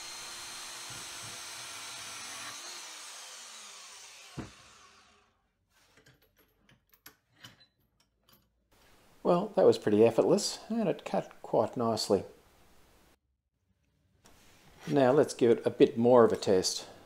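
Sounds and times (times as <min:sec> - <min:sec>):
motor winding down: 0:00.0 - 0:05.3
bandsaw cutting metal: 0:00.0 - 0:05.4
saw knocking on bench: 0:04.3 - 0:04.7.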